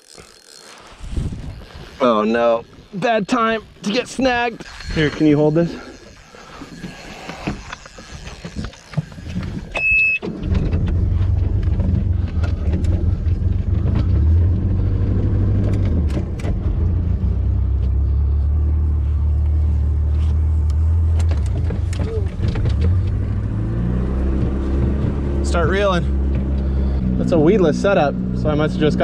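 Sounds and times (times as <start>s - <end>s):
boat engine running: 0.0s - 29.0s
short electronic beep: 9.8s - 10.2s.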